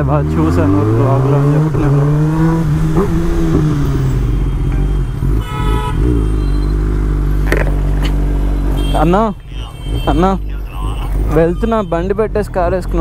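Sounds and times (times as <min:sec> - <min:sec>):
motorcycle engine at low revs: 0:00.0 - 0:04.3, 0:05.0 - 0:09.4
vehicle horn toot: 0:04.2 - 0:06.8, 0:08.6 - 0:10.5.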